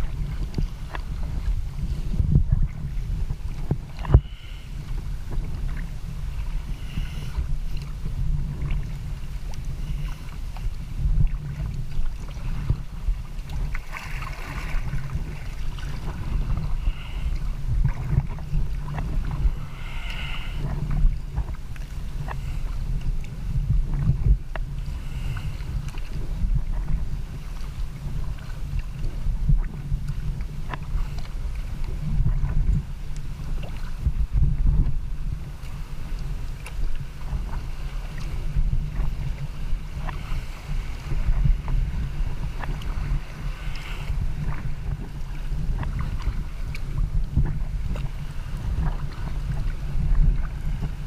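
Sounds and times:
paddle splashing water: 0.0s - 51.0s
wind on microphone: 0.0s - 51.0s.

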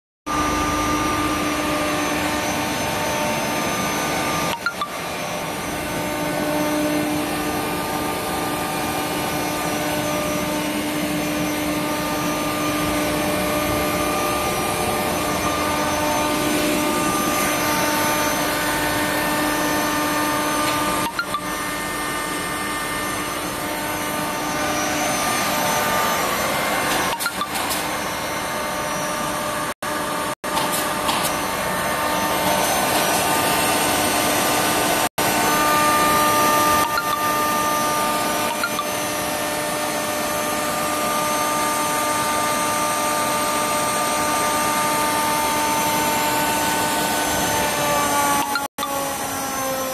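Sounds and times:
air compressor running: 0.3s - 49.9s.

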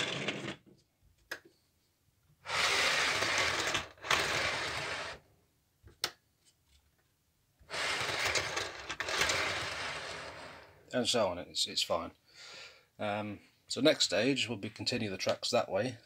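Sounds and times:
model train wagon rolling: 0.0s - 0.6s, 2.5s - 5.2s, 7.7s - 10.7s.

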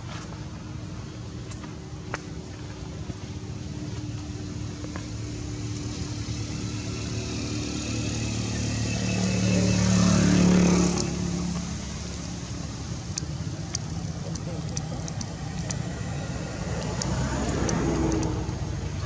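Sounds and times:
vehicle engine passing by: 4.1s - 19.0s.

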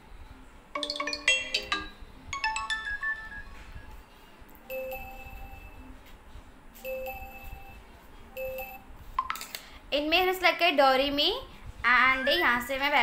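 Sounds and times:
phone ringtone melodies: 0.8s - 3.9s, 4.7s - 5.9s, 6.8s - 7.8s, 8.4s - 8.9s, 12.1s - 12.7s.

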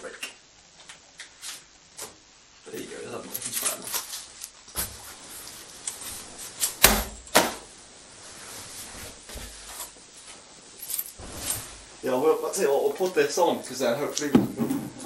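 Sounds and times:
knocks and thuds: 14.3s - 15.0s.

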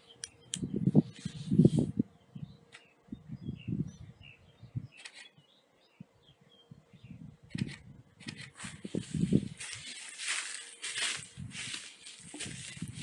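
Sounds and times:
small birds chirping: 0.0s - 13.0s
low rumbles on microphone: 0.6s - 5.0s
footsteps rustling through dry grass: 8.5s - 13.0s.

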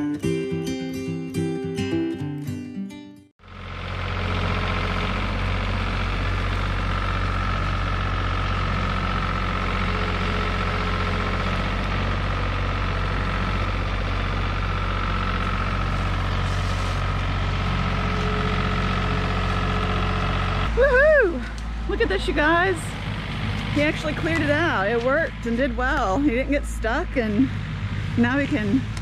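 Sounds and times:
tractor engine running: 3.4s - 29.0s
brush cutter whine: 3.5s - 20.8s.

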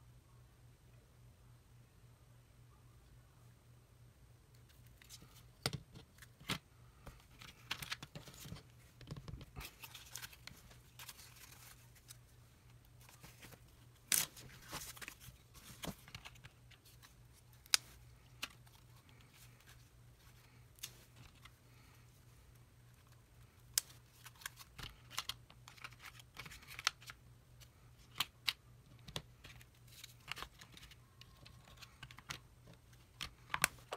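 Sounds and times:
faint low hum: 0.0s - 33.9s.

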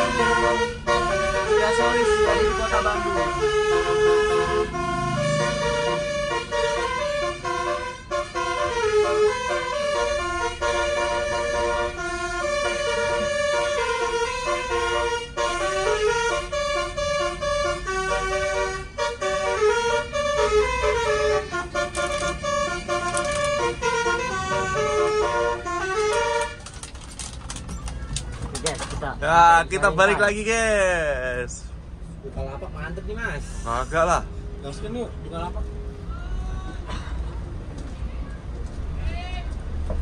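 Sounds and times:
air horn playing melody: 0.0s - 26.7s
low engine rumble: 0.0s - 40.0s.

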